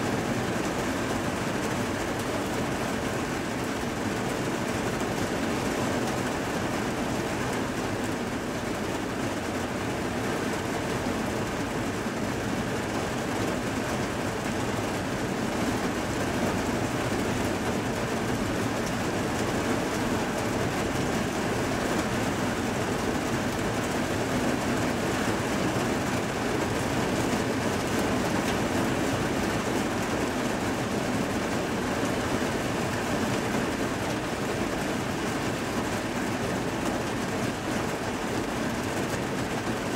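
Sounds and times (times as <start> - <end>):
heavy rain pouring: 0.0 - 39.9.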